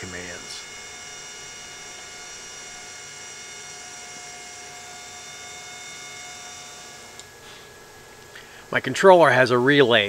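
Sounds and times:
high whining tones: 0:00.0 - 0:07.4
electrical hum: 0:00.0 - 0:10.0.

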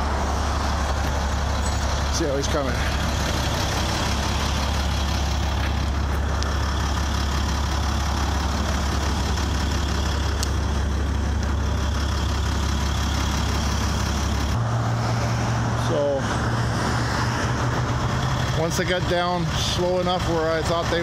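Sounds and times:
truck engine idling: 0:00.0 - 0:21.0.

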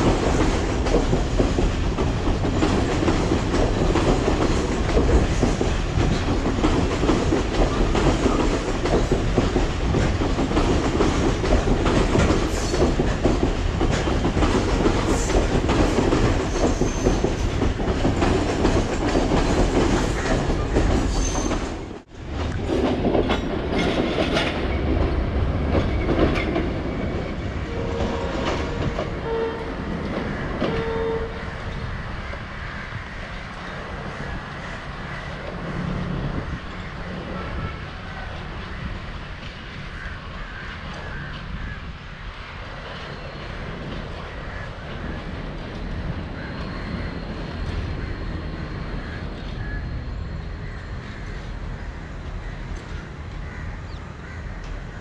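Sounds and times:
train wheels clattering over track: 0:00.0 - 0:55.0.

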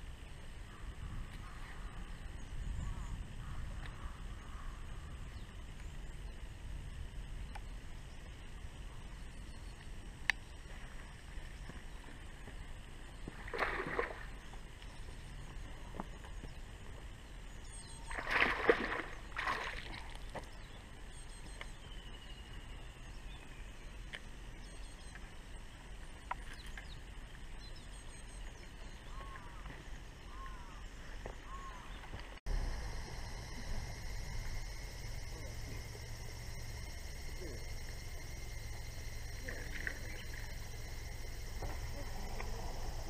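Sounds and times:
splashes on pond surface: 0:13.3 - 0:14.7, 0:18.0 - 0:20.5
faint bird chirps: 0:26.2 - 0:43.0.

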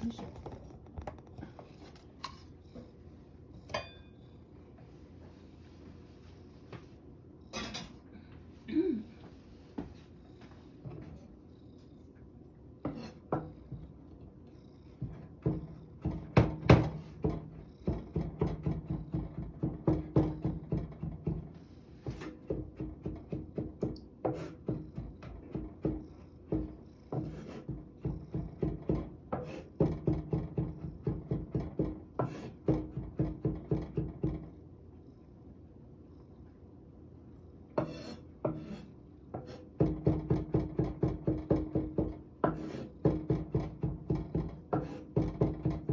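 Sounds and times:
knife chopping carrot on board: 0:22.0 - 0:34.4, 0:37.8 - 0:45.9.

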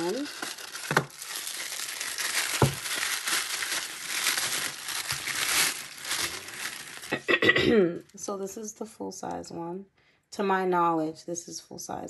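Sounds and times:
tissue paper crinkling: 0:00.0 - 0:07.3.

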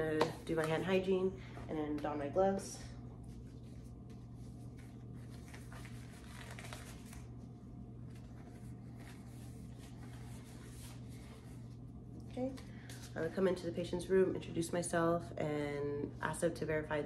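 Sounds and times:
steady low hum: 0:00.0 - 0:17.0
gloves rustling: 0:03.1 - 0:12.1.

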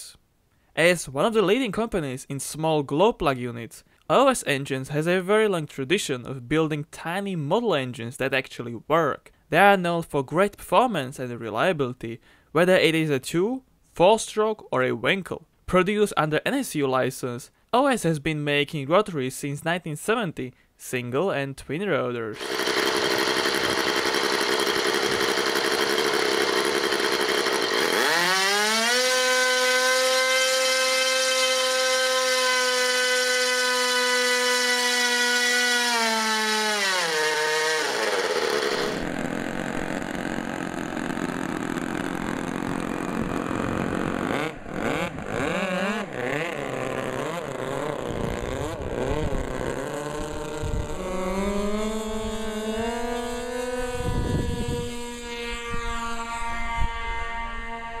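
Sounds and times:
model engine revving: 0:22.4 - 0:58.0
model plane engines running: 0:22.4 - 0:58.0.

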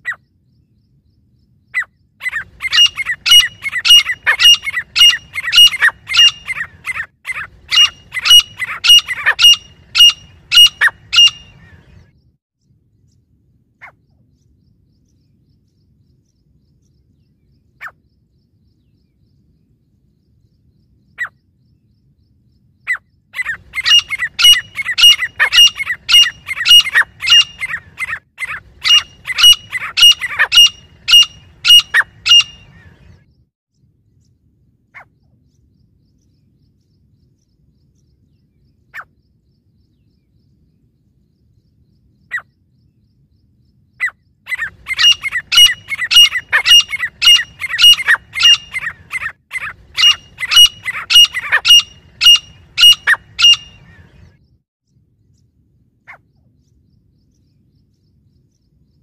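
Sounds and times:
francolins calling: 0:01.6 - 0:12.0, 0:22.8 - 0:33.2, 0:43.9 - 0:54.4.

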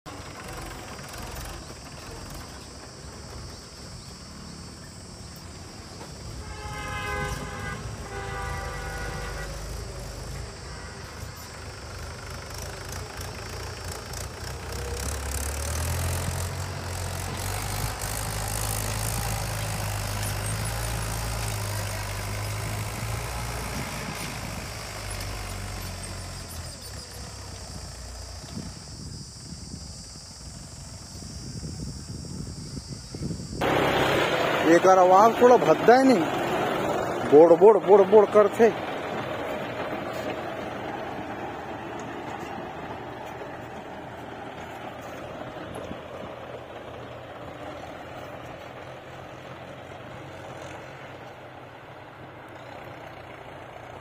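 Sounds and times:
tractor diesel engine running: 0:00.1 - 0:54.0
horn tone: 0:06.3 - 0:11.5.

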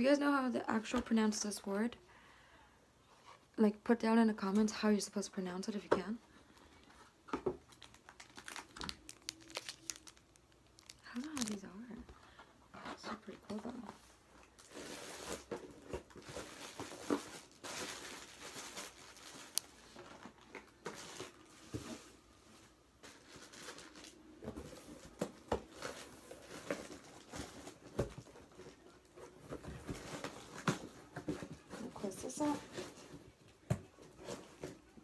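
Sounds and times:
plastic wrappers crinkling: 0:06.8 - 0:12.1, 0:12.9 - 0:22.1, 0:23.0 - 0:33.3.

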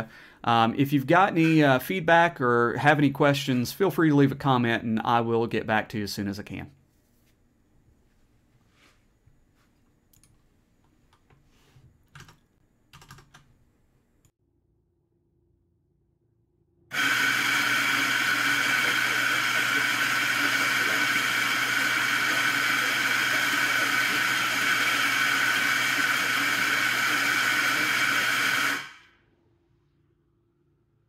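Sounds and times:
coffee grinder motor grinding beans: 0:16.9 - 0:29.0.

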